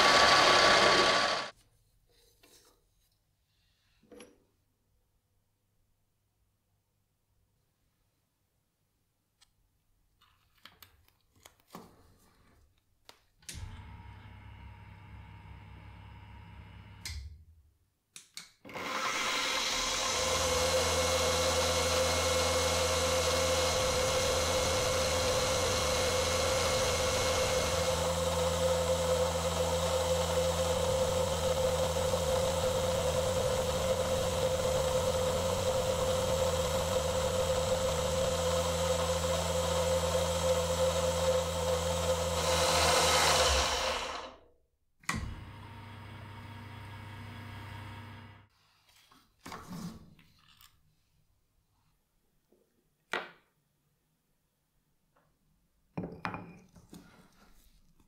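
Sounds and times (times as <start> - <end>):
milling machine spindle running: 0.0 - 1.5, 18.8 - 44.3.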